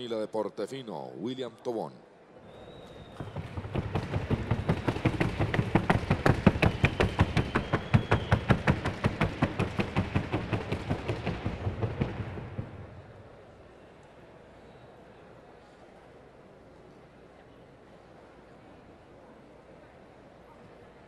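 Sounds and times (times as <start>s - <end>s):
hoofbeats on wooden board: 3.0s - 13.0s.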